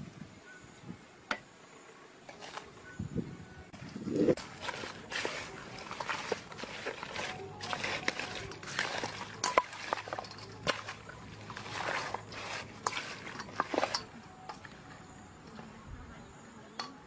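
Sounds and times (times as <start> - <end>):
wet squelches and rustles: 3.8 - 14.8.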